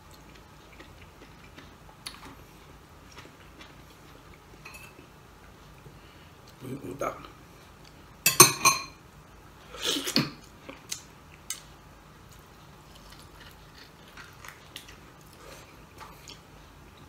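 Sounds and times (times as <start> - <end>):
quiet chewing: 0.0 - 6.6, 10.1 - 17.0.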